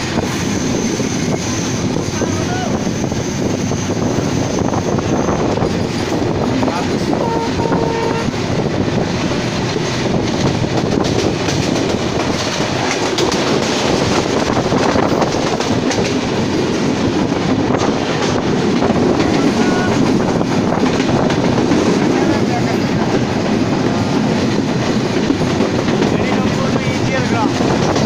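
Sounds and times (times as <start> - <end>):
train wheels rumbling on track: 0.0 - 28.0
clattering over rails: 8.4 - 28.0.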